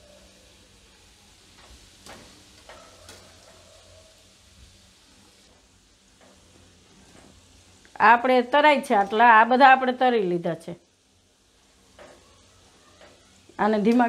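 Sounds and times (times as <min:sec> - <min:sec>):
pastries sizzling in fat: 0:00.0 - 0:14.0.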